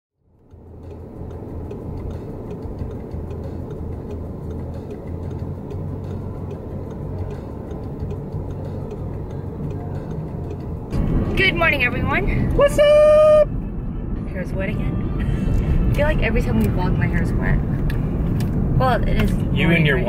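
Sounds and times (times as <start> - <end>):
road noise inside car: 0.2 - 20.0
faint regular ticking: 0.3 - 12.2.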